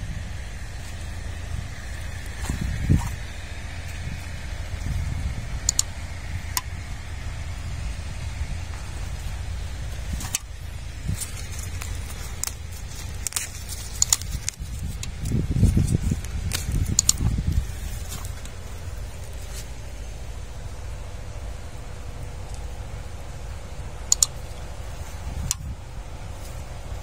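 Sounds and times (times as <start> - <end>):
low thumps: 0.0 - 27.0
wind on microphone: 0.0 - 27.0
sharp clicks: 5.5 - 6.8, 10.0 - 18.6, 24.0 - 25.7.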